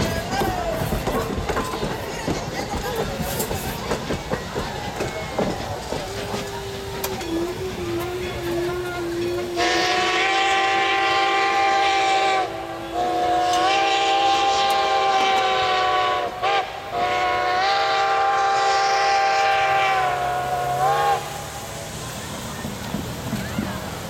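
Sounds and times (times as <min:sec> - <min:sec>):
steam whistle blasts: 0:06.7 - 0:21.7.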